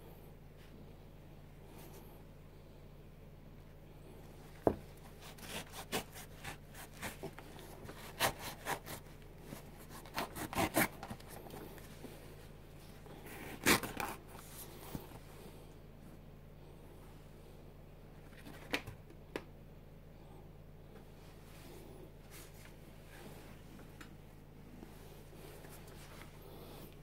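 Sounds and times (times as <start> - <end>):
sneaker fabric rustling and scraping: 4.6 - 15.3.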